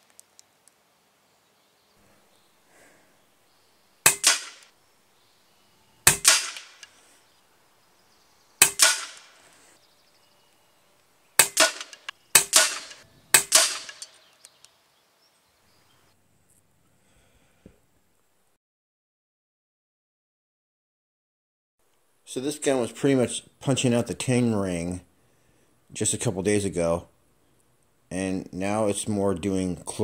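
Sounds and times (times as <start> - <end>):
air rifle shots: 4.0 - 4.8, 6.0 - 7.1, 8.6 - 9.6, 11.4 - 14.2.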